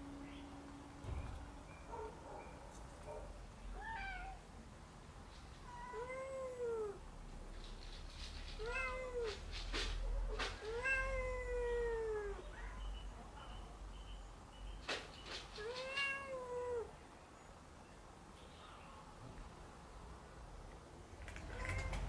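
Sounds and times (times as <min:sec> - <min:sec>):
cat meowing: 0:03.7 - 0:04.4, 0:05.6 - 0:07.0, 0:08.6 - 0:09.5, 0:10.6 - 0:12.8, 0:15.6 - 0:16.9, 0:21.3 - 0:22.0.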